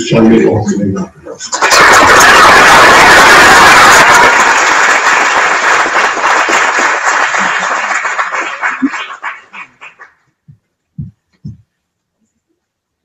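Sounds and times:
audience applauding: 1.5 - 10.2.

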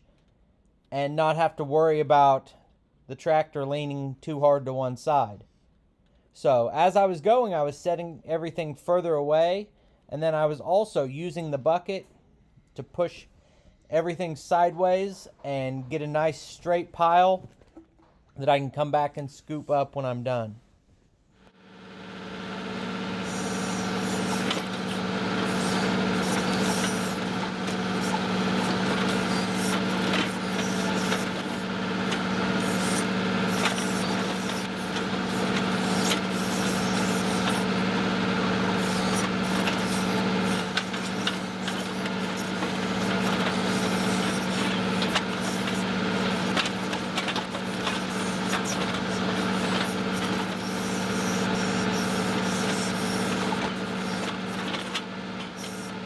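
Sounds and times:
diesel tractor engine running: 21.5 - 56.0
backhoe bucket clanking and scraping: 23.8 - 55.9.

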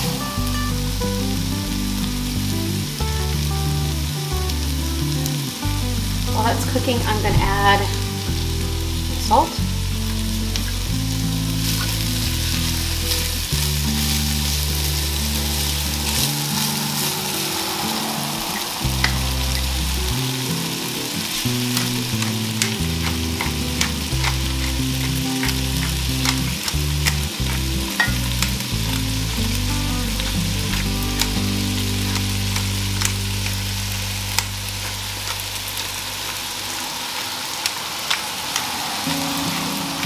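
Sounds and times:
background music: 0.0 - 36.4
vegetables sizzling in oil: 0.0 - 40.0
pepper mill grinding: 10.1 - 17.3, 18.5 - 20.1, 21.1 - 40.0
spatula scraping a pot: 21.5 - 28.6.

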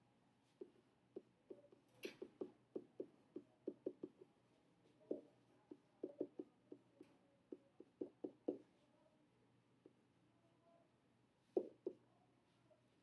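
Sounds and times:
stylus tapping on tablet screen: 0.6 - 4.3, 5.0 - 8.7, 11.6 - 12.0.

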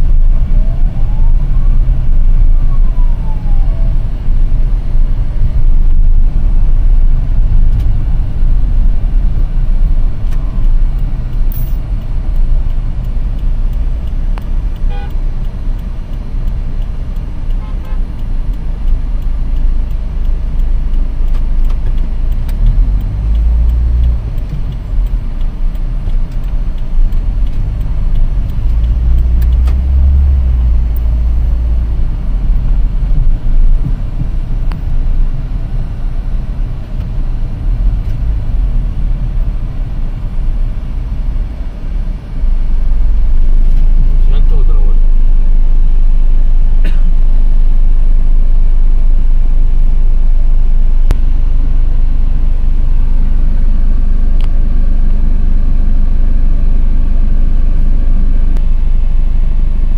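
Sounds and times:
rising and falling tone: 0.0 - 4.5
motor vehicles rumbling: 0.0 - 59.9.

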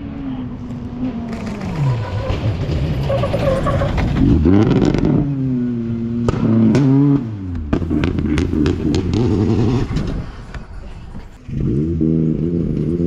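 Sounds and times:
rally car engine through gear changes: 0.6 - 10.4.

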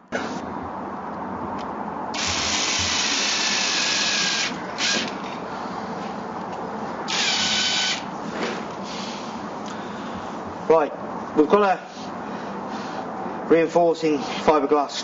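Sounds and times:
power drill driving screws: 2.2 - 5.1, 7.1 - 8.0.

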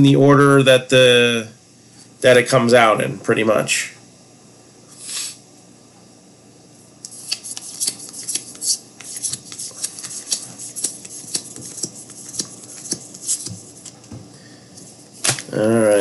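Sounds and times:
cards and wrappers rustling: 7.2 - 14.1.

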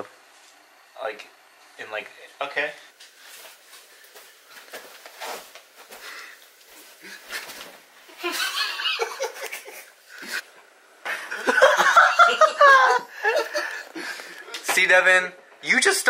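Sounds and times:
people laughing and giggling: 8.2 - 9.9, 11.1 - 14.0.

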